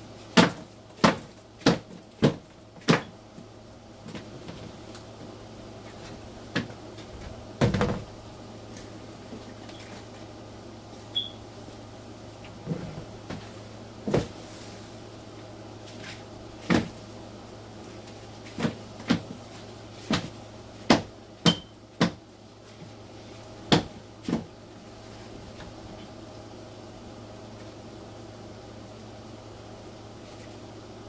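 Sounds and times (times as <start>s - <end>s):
cardboard crates knocking on container: 0.3s - 3.1s, 7.6s - 8.1s, 12.6s - 14.4s, 16.6s - 17.0s, 18.5s - 19.4s, 20.0s - 22.2s.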